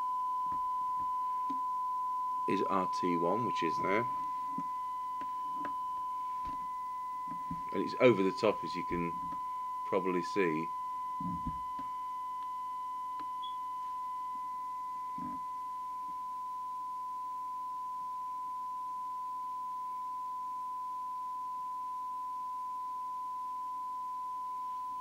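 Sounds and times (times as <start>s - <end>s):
steady radio test tone: 0.0s - 16.2s.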